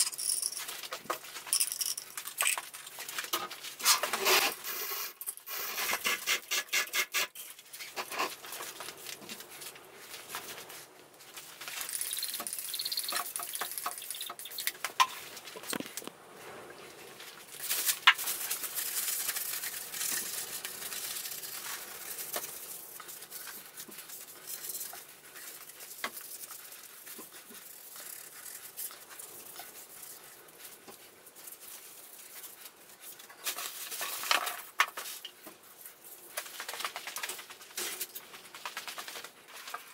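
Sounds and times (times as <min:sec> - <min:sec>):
chain rattling and clicking: 0:00.0 - 0:02.6.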